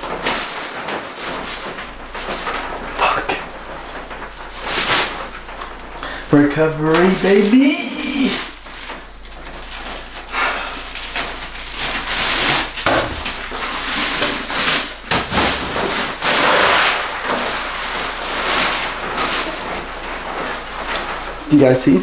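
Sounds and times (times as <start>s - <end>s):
ice clattering: 0.0s - 22.0s
ice cubes rattling and crackling: 0.0s - 22.0s.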